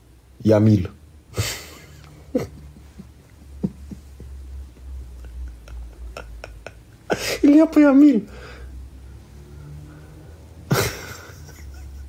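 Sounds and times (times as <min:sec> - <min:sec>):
man laughing: 0:01.4 - 0:07.9, 0:10.7 - 0:12.0.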